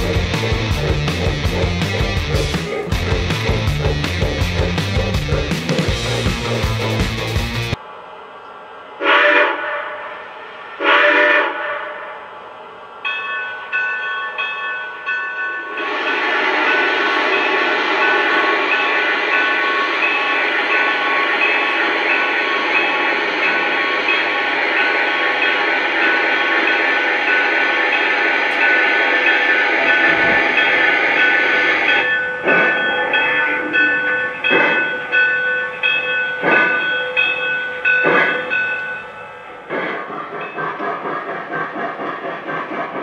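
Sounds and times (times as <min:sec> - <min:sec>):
steam puffs: 0:39.6 - 0:43.0.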